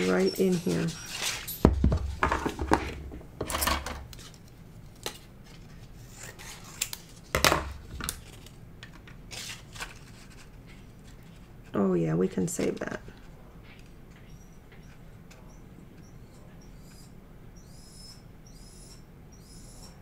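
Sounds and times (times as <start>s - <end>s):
paper rustling: 4.1s - 11.8s.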